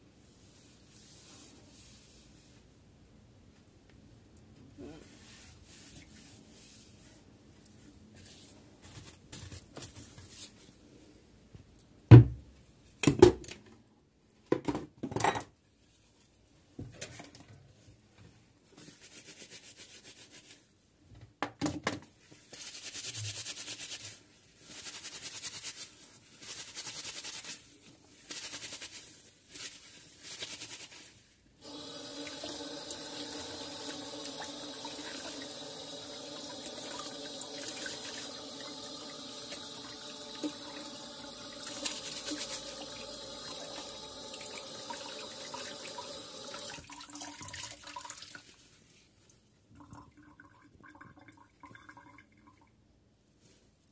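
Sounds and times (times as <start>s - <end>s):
cloth scrubbing a frying pan: 0.2s - 2.6s, 5.0s - 7.4s, 32.2s - 46.1s
tap water running into pan: 31.6s - 48.2s.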